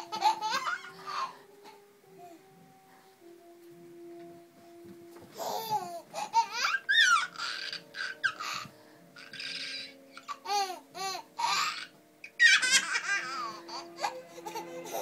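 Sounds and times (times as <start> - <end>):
baby laughing: 0.0 - 1.8, 5.4 - 15.0
baby high-pitched squeals: 5.4 - 15.0.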